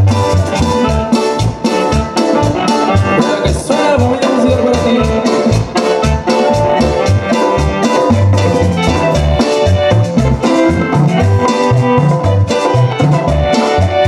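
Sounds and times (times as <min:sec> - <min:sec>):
lively dance band music: 0:00.0 - 0:14.0.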